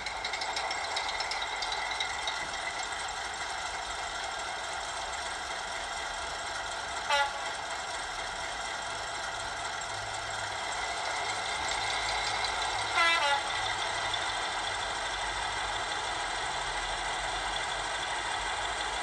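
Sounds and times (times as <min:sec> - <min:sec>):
diesel engine idling through speaker: 0:00.0 - 0:19.0
train horn toot: 0:07.0 - 0:07.7, 0:12.8 - 0:14.0.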